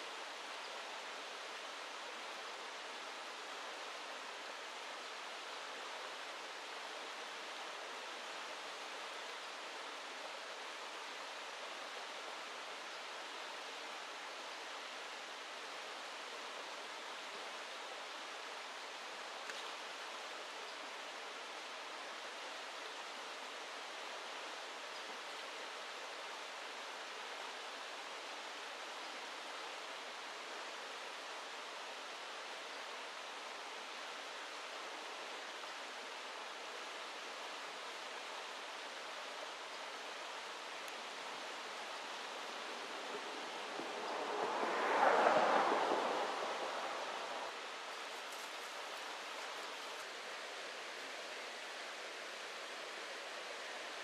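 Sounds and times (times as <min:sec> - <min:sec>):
river running over rocks: 0:00.0 - 0:54.0.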